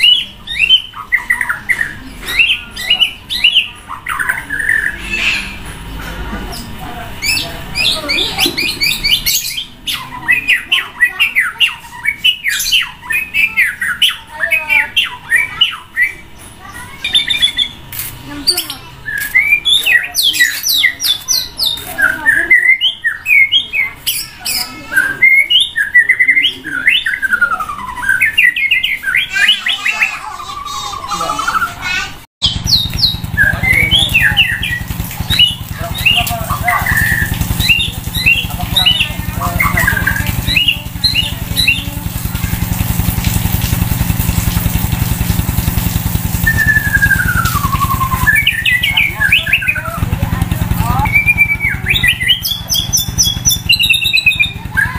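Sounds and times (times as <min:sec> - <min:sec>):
bird singing whistled song: 0:00.0 - 0:05.6, 0:19.1 - 0:29.8, 0:32.4 - 0:42.2, 0:46.3 - 0:54.9
engine idling: 0:32.4 - 0:54.9.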